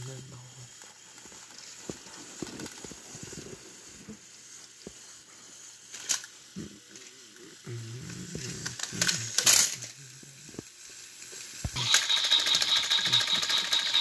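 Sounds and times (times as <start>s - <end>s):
plastic toy trains rattling: 0.0s - 3.8s, 4.4s - 14.0s
toy motor whine with gear ticking: 0.0s - 14.0s.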